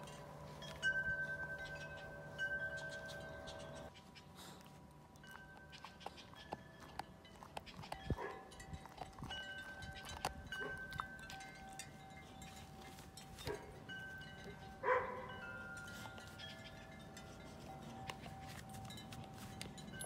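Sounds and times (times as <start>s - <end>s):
wind chimes ringing: 0.0s - 3.9s, 8.0s - 20.0s
dog chewing rope toy: 3.9s - 13.8s.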